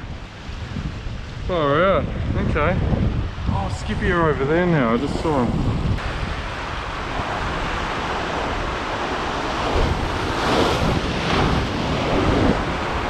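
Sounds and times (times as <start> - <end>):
wave foaming over ledge: 0.0 - 13.0
wind rumbling on microphone: 0.0 - 13.0
waves surging against rocks: 3.0 - 13.0.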